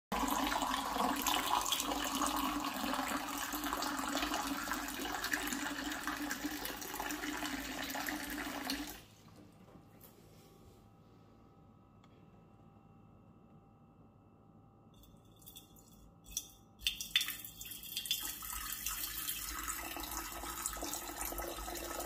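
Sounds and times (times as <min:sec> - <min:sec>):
water pouring into glass jug: 0:00.1 - 0:09.0, 0:15.4 - 0:22.0.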